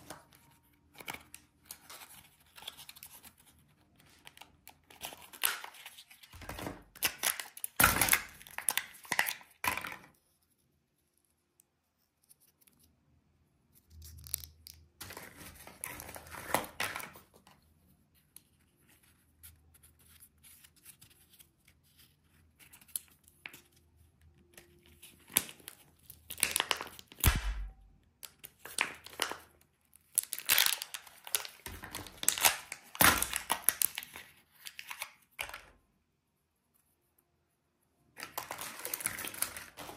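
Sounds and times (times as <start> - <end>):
wrappers tearing and crinkling: 4.2 - 9.7, 25.2 - 27.4, 30.1 - 35.2, 38.2 - 39.9
scissors snipping wrappers: 7.0 - 9.5.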